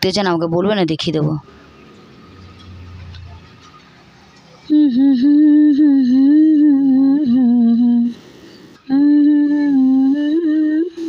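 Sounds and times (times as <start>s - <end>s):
woman humming: 4.7s - 8.2s, 8.9s - 11.0s.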